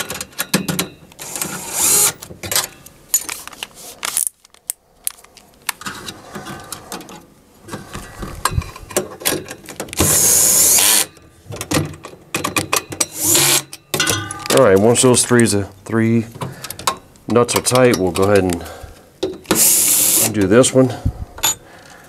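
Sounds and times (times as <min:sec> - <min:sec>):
cordless drill driving screws: 0:01.2 - 0:02.2, 0:10.0 - 0:11.1, 0:13.2 - 0:13.6, 0:19.5 - 0:20.3
screws and nuts rattling: 0:12.8 - 0:13.9, 0:19.5 - 0:20.5.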